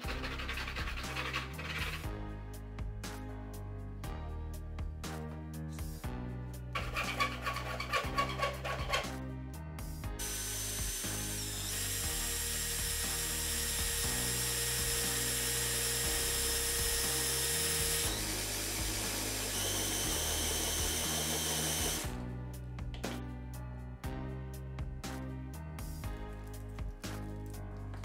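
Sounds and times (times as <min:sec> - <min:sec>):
electric drill whining into steel: 0:06.8 - 0:09.0, 0:10.2 - 0:22.1.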